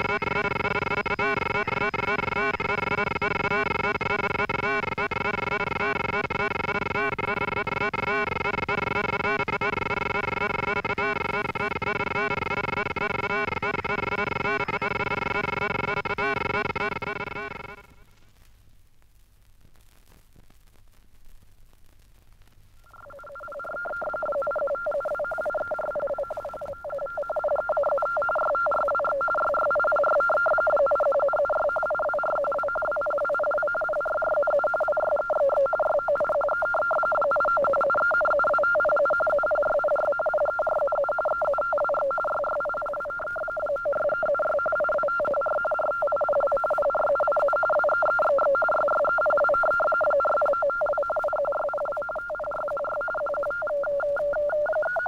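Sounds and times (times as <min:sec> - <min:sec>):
warbling teleprinter radio signal: 0:00.0 - 0:18.0, 0:22.8 - 0:55.0.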